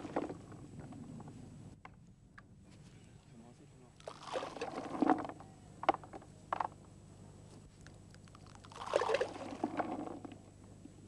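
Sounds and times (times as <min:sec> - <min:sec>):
small splashes on water: 0:04.0 - 0:05.0, 0:08.3 - 0:10.1
bait rattling in plastic bucket: 0:04.0 - 0:05.4, 0:08.3 - 0:10.4.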